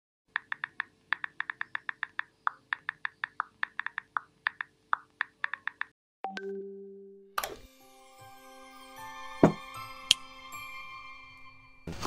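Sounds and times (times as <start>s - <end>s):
touchscreen keyboard taps: 0.4s - 5.9s.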